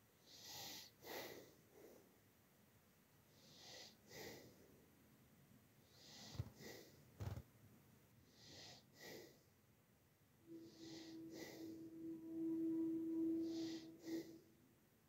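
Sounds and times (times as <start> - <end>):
breathing close to microphone: 0.2 - 2.1, 3.4 - 4.6, 5.9 - 7.4, 8.3 - 9.5, 10.5 - 11.9, 13.4 - 14.6.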